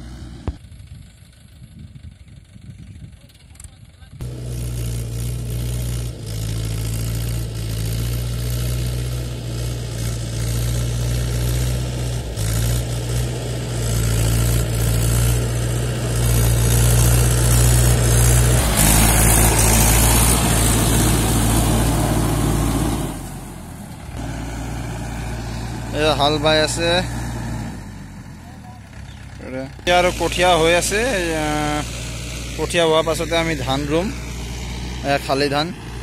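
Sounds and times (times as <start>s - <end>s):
tractor engine running: 0.0s - 36.0s
rotary tiller ploughing: 4.2s - 22.9s.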